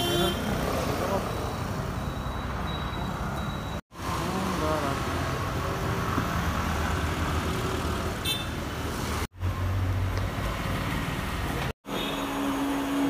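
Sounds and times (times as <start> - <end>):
street traffic noise: 0.0 - 13.0
high-pitched beep: 1.3 - 3.8.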